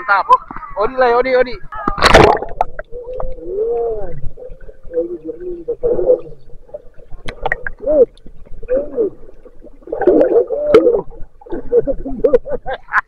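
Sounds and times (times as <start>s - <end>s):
underwater gurgles: 1.6s - 13.0s
sharp underwater clicks: 7.2s - 8.3s.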